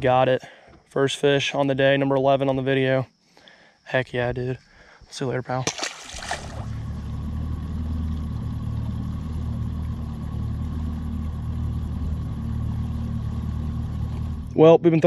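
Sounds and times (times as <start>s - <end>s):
outboard engine running: 5.7s - 7.3s.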